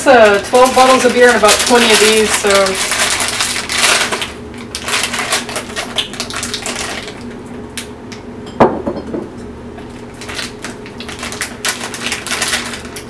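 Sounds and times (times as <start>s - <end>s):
plastic bag crinkling: 0.0s - 7.4s, 10.0s - 13.0s
glass knocking on counter: 8.5s - 9.3s.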